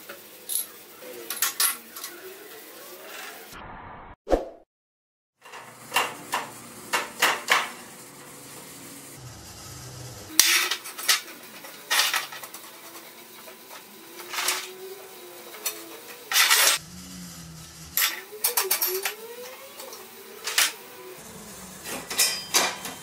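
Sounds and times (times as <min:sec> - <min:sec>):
steel tube clanking and scraping: 0:21.8 - 0:23.0.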